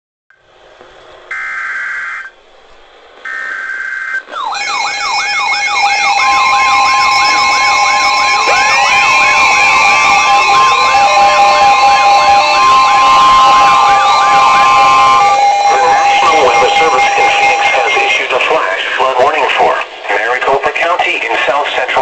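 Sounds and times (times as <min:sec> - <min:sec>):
siren-like alarm sweeps: 0:01.3 - 0:02.3, 0:03.3 - 0:19.3
steady alarm tones: 0:01.3 - 0:02.3, 0:03.2 - 0:19.8
long steady warning tone: 0:03.2 - 0:19.6
screechy data bursts: 0:03.3 - 0:18.8.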